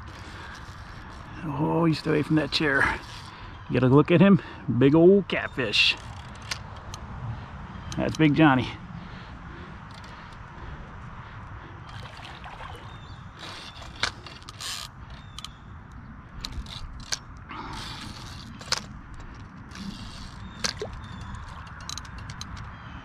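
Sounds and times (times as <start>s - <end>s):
fishing reel drag clicking: 13.0s - 15.6s.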